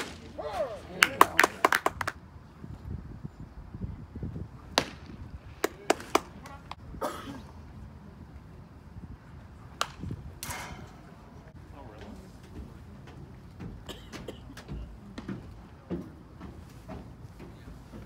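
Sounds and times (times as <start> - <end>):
baseball smacking into a mitt: 4.7 - 6.3, 9.8 - 10.6.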